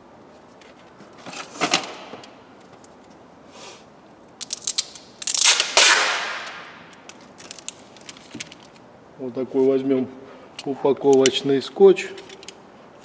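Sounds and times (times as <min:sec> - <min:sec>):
packing tape ripping off roll: 0:04.4 - 0:08.8.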